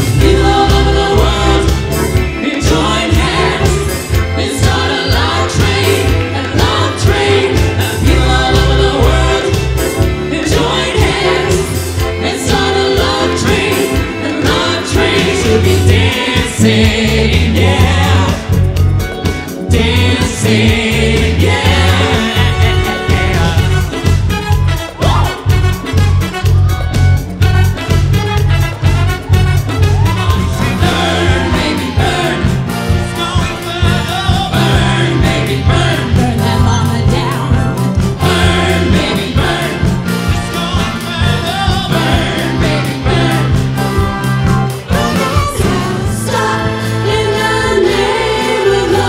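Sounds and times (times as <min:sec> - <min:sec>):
upbeat soul music with group singing: 0:00.0 - 0:49.0.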